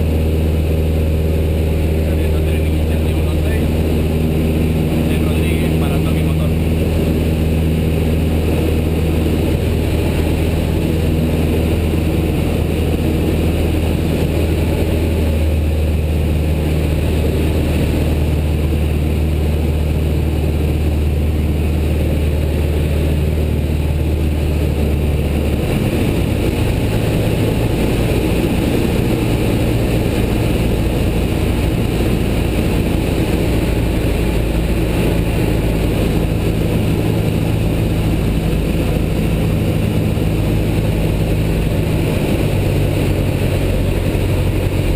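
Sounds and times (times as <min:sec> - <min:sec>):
light plane engine drone: 0:00.0 - 0:44.9
rushing air: 0:00.0 - 0:44.9.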